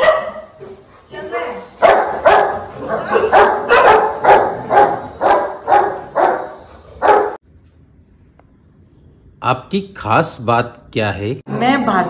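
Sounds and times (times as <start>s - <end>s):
dog barking: 0.0s - 0.6s, 1.8s - 7.4s.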